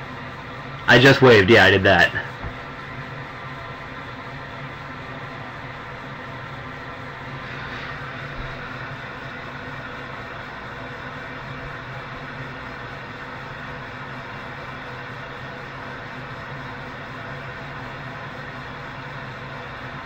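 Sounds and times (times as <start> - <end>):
television static hiss: 0.0 - 20.0.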